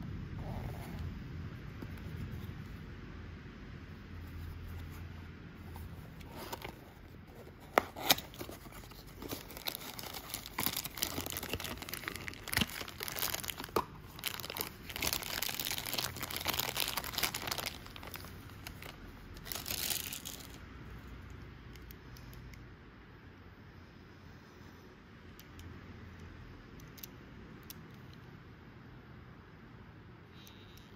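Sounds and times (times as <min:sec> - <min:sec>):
plastic bag crinkling: 0:06.2 - 0:20.6.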